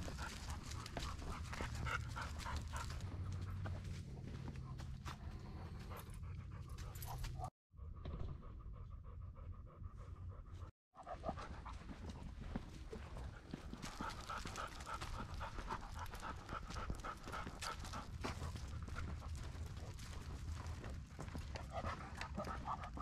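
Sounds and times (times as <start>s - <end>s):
footsteps on leafy dirt path: 0.0s - 5.9s
dog panting: 0.0s - 23.0s.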